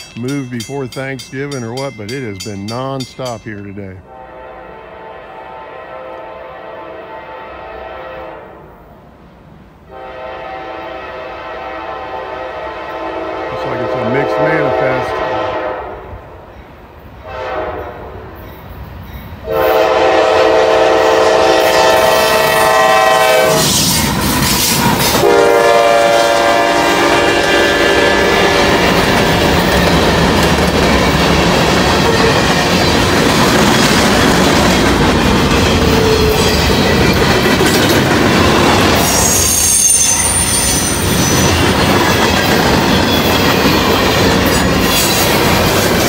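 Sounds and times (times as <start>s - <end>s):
freight train cars rumbling past: 0.0s - 46.0s
locomotive air horn: 4.1s - 8.8s, 9.9s - 16.0s, 17.2s - 18.1s, 19.4s - 24.0s, 25.1s - 28.9s.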